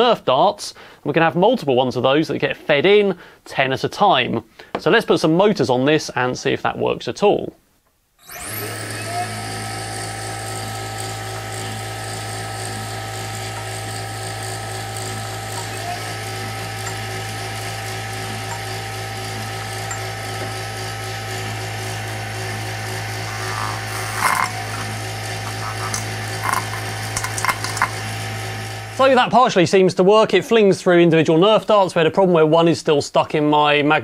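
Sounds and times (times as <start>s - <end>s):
motors humming and whining: 8.2s - 29.2s.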